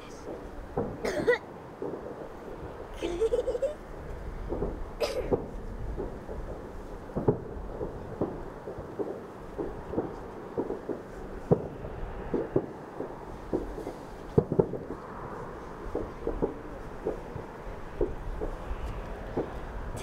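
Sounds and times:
distant fireworks bangs and pops: 0.2s - 20.0s
loud firework bangs: 0.2s - 20.0s.

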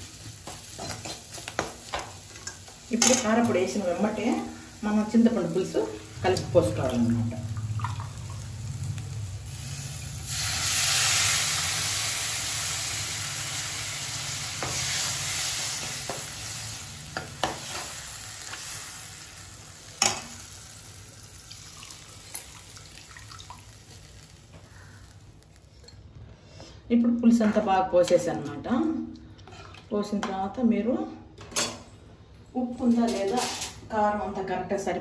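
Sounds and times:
liquid sizzling in hot oil: 0.0s - 25.9s.

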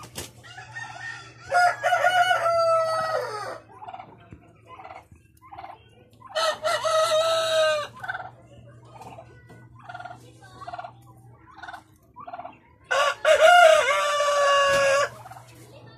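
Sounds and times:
rooster clucking: 0.0s - 15.7s
rooster crowing: 0.4s - 3.6s, 12.9s - 15.1s.

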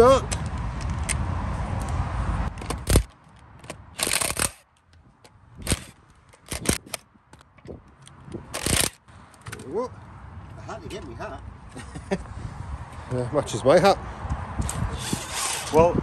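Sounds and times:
bolt and tool clicks: 1.8s - 9.7s
impact wrench rattling: 3.7s - 4.6s, 8.5s - 9.0s.

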